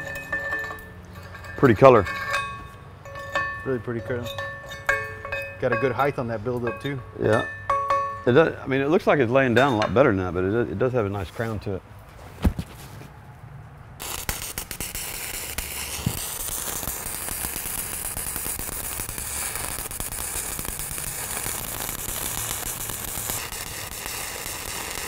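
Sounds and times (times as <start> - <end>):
welding arc crackling: 14.0 - 25.0.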